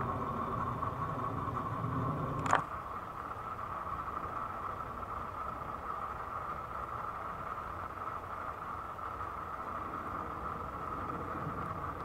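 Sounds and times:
jet airliner flying overhead: 9.2 - 12.0.

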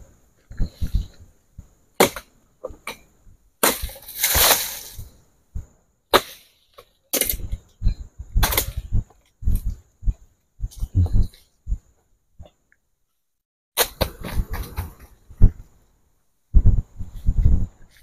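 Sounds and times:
rustling crash of fronds: 3.6 - 5.1.

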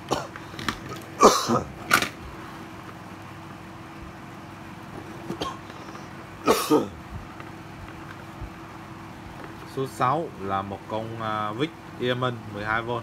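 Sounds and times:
man coughing: 1.2 - 1.8, 5.3 - 5.7, 6.4 - 7.0.

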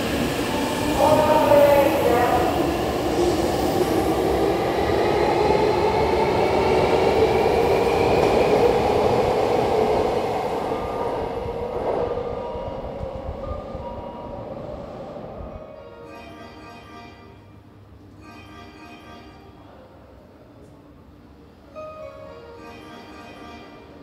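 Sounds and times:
train wheels rumbling on rails: 0.0 - 15.6.

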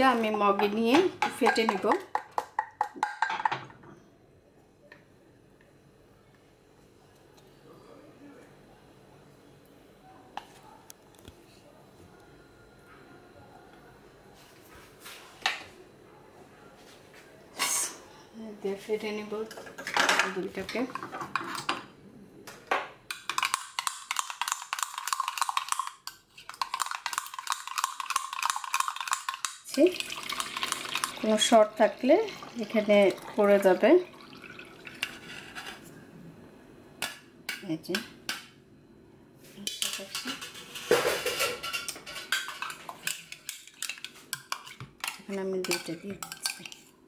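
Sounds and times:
saucepan and sieve clinking on jug: 0.0 - 3.6, 23.1 - 31.7.

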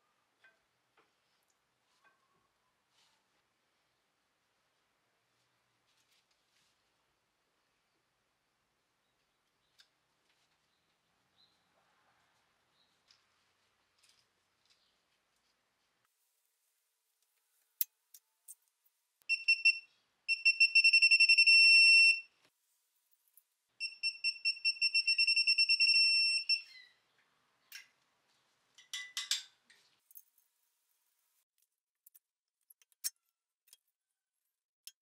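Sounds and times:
rustling: 5.3 - 7.2, 12.2 - 17.8.

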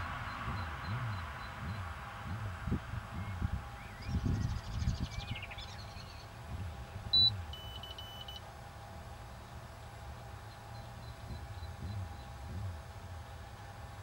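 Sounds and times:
wind rumble on microphone: 0.0 - 7.6, 8.8 - 14.0
electronic beeps: 7.1 - 8.4.

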